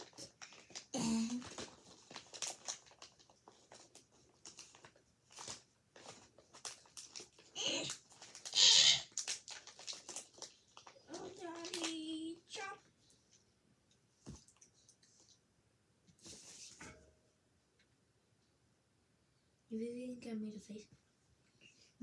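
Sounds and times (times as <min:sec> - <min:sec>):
candy bag crinkling: 0:00.0 - 0:12.8.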